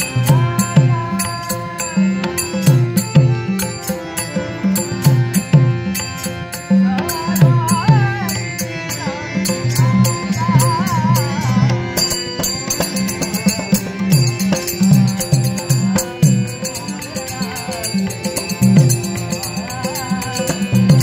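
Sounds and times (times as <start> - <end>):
wavering melody with vibrato: 0.0 - 21.0
barrel drum rhythm: 9.5 - 21.0.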